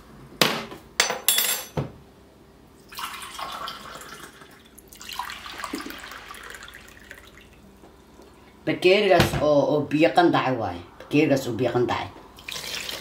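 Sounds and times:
water pouring into cup: 2.8 - 8.5, 12.4 - 13.0.

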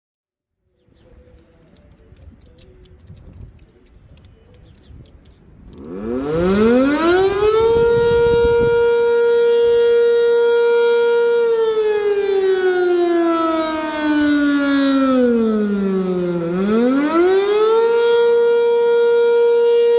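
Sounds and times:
wind rumbling on microphone: 1.0 - 10.0
warning siren wailing: 5.7 - 19.9.

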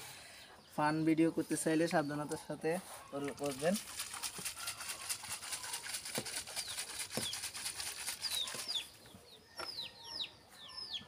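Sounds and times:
bird chirping: 4.6 - 11.0.

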